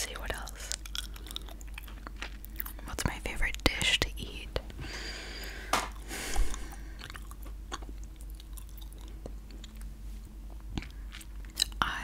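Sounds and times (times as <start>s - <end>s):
chewing gum mouth smacks: 0.5s - 2.8s, 5.9s - 9.9s, 10.7s - 11.8s.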